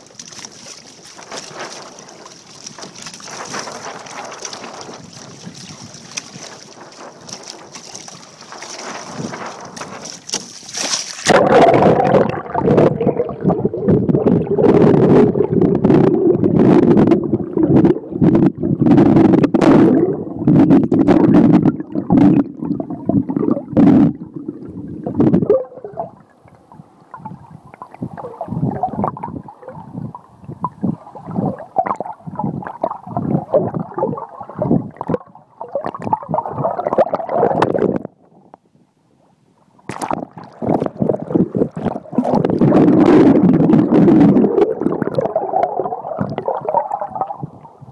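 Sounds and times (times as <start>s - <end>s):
muffled underwater rush: 0.0s - 38.3s, 39.8s - 47.9s
gurgling water: 0.0s - 38.6s, 39.7s - 47.9s
wind on microphone: 1.1s - 38.2s, 40.0s - 47.9s
pops: 39.9s - 47.4s.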